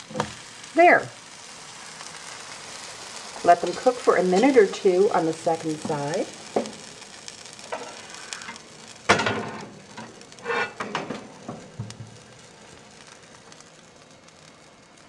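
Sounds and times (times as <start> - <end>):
pancakes sizzling on griddle: 0.0 - 15.0.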